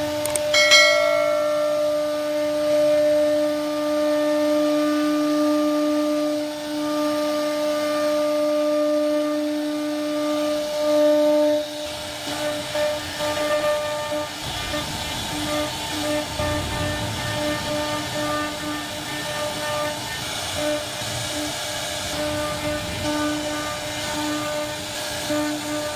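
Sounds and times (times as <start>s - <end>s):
router spindle high whine: 0.0s - 25.9s
rough uneven cutting noise: 11.7s - 25.9s.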